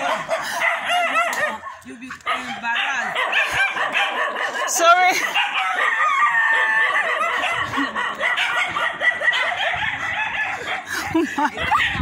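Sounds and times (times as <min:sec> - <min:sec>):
rooster crowing: 0:05.5 - 0:07.6.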